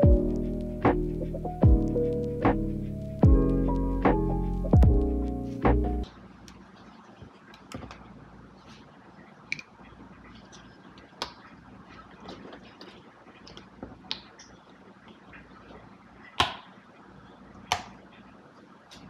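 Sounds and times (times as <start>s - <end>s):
faint room noise: 0.0s - 19.0s.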